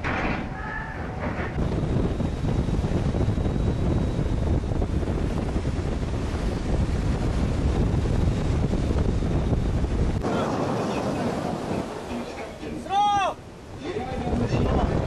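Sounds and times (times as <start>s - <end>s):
wind buffeting microphone: 0.0s - 15.0s
ship bow wave rushing: 4.9s - 15.0s.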